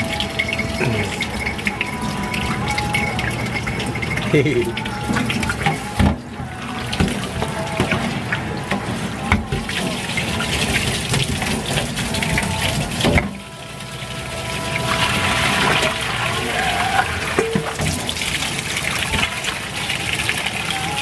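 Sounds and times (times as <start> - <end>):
metal dishes clattering: 0.0 - 13.4, 16.8 - 18.2
tap water splashing into sink: 2.6 - 13.4, 16.6 - 20.5.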